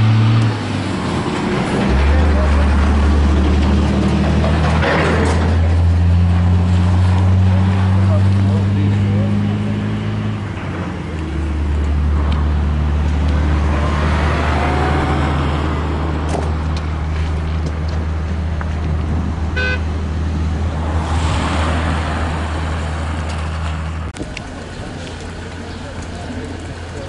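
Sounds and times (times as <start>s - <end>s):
road traffic passing: 0.0s - 27.0s
vehicle engine humming: 0.0s - 27.0s
car horn toot: 19.6s - 19.9s.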